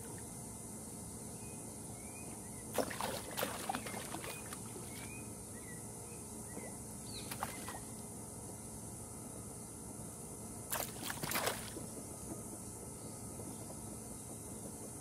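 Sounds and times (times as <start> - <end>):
faint bird chirps: 1.3 - 8.0
fish splashing at water surface: 2.7 - 5.1, 7.3 - 7.9, 10.7 - 11.8.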